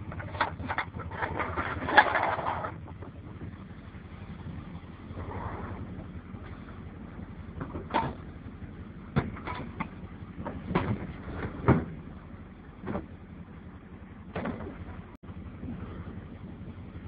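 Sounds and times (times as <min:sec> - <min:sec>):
vehicle engine rumbling: 0:00.0 - 0:17.0
sharp knocks and clunks: 0:07.6 - 0:08.3, 0:09.1 - 0:12.0, 0:12.8 - 0:13.2, 0:14.3 - 0:15.0.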